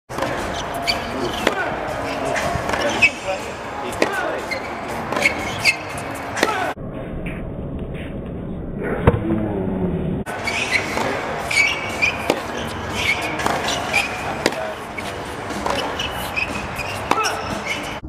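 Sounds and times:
racket hitting ball: 0:00.1 - 0:03.1, 0:03.9 - 0:07.4, 0:10.6 - 0:17.9
shoes squeaking on court: 0:00.1 - 0:06.7, 0:10.3 - 0:18.0
crowd chatter: 0:00.1 - 0:06.8, 0:10.3 - 0:18.0.

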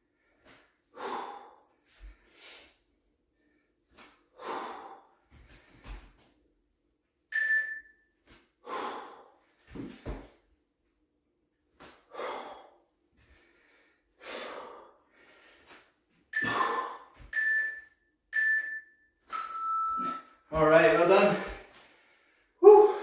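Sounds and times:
man breathing hard: 0:00.0 - 0:06.2, 0:08.6 - 0:10.2, 0:11.9 - 0:17.3, 0:21.4 - 0:23.0.

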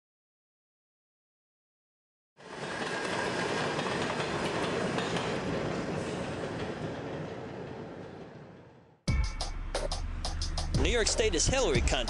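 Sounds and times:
train wheels on rails: 0:02.4 - 0:09.0.

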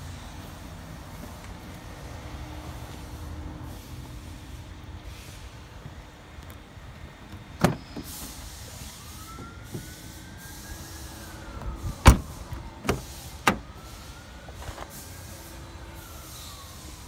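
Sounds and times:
car door latch clicking: 0:07.3 - 0:08.1, 0:12.0 - 0:13.6
car door shutting: 0:07.3 - 0:08.5, 0:11.6 - 0:13.7.

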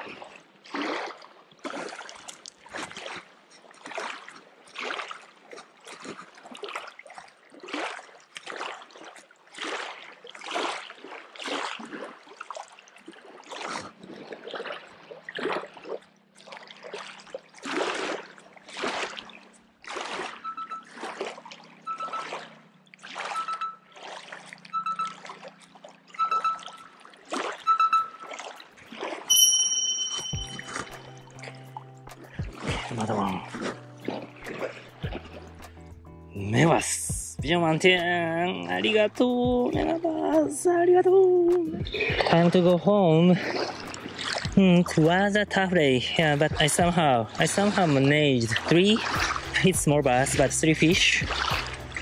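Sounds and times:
small waves lapping on rocks: 0:00.0 - 0:26.1, 0:41.7 - 0:50.1.

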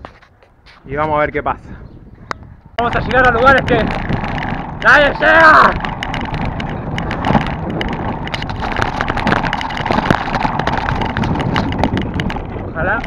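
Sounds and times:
wind rumbling on microphone: 0:00.0 - 0:13.0
bicycle rattling: 0:02.3 - 0:13.0
tyres crunching on gravel: 0:02.8 - 0:13.0.

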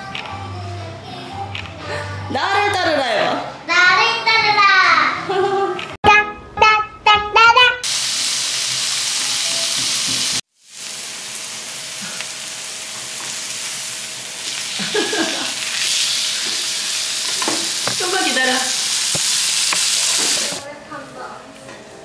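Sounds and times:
meat sizzling on a grill: 0:07.9 - 0:20.6.

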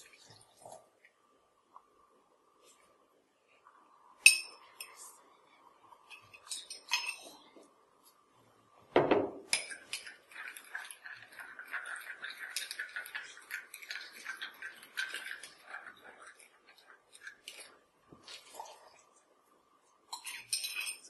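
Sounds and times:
teaspoon clinking against glass: 0:06.1 - 0:07.3.

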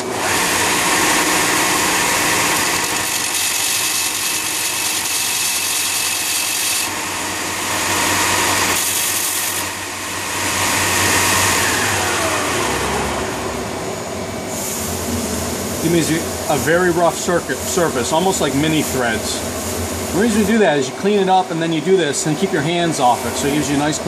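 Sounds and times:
belt sander running: 0:00.0 - 0:24.0
metal rod grinding on sander belt: 0:00.2 - 0:07.0, 0:07.7 - 0:09.7.

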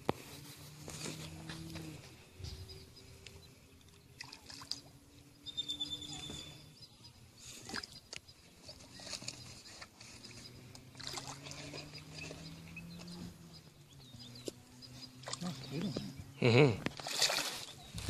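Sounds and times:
fish splashing at water surface: 0:10.9 - 0:12.5, 0:16.9 - 0:17.8.

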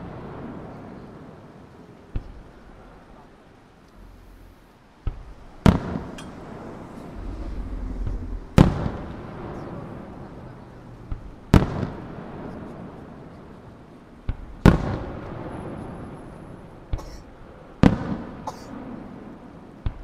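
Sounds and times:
firework booms: 0:04.0 - 0:17.1, 0:17.8 - 0:20.0
lighter firework bang: 0:05.0 - 0:09.8.

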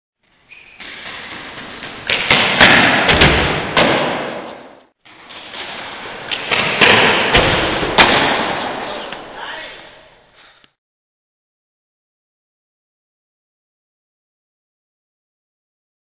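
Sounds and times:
sharp knocks: 0:02.0 - 0:04.7.

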